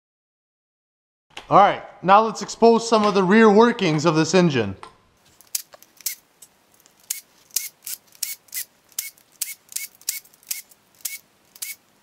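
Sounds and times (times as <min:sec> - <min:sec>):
sharp metallic tool clicks: 0:07.0 - 0:11.8.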